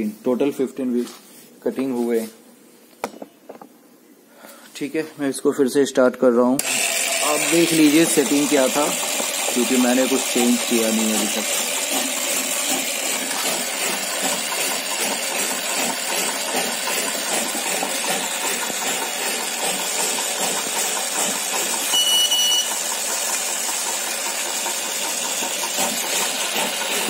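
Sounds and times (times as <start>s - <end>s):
wick cutter machine running: 6.6s - 27.0s
short high beep: 21.9s - 22.8s.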